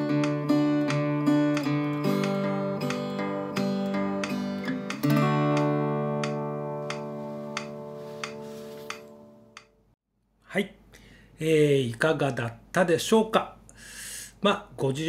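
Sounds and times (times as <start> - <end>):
acoustic guitar strumming chords: 0.0 - 9.6.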